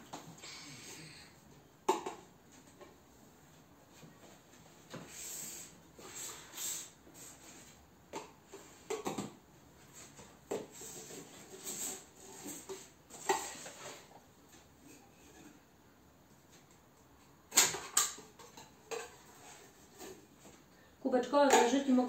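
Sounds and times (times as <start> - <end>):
plastic cups rubbing and sliding: 5.0 - 7.8, 9.8 - 15.6, 19.0 - 20.4.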